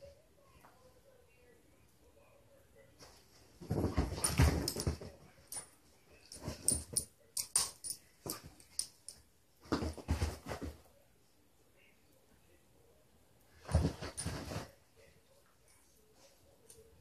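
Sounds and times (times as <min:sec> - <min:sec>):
dogs play-wrestling: 0:03.3 - 0:05.6, 0:13.6 - 0:14.7.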